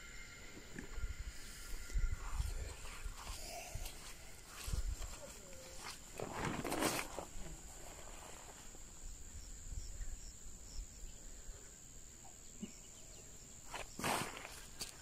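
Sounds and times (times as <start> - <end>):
high-pitched insect drone: 0.0 - 6.2.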